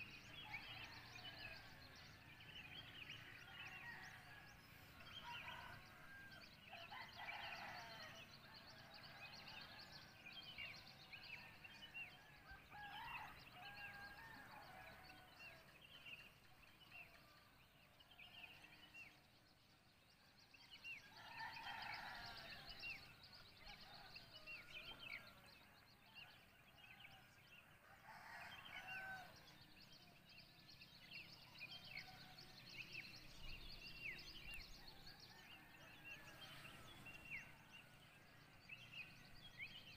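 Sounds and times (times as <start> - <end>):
distant roosters crowing: 21.1 - 22.8.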